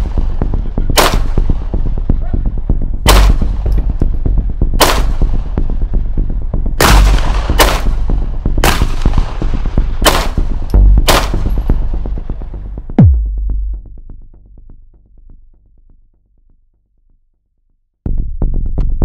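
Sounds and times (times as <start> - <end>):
electronic background music: 0.0 - 16.7
pistol shots: 1.0 - 1.4, 3.1 - 3.5, 4.8 - 5.3, 6.8 - 9.3, 10.0 - 10.4, 11.0 - 11.5.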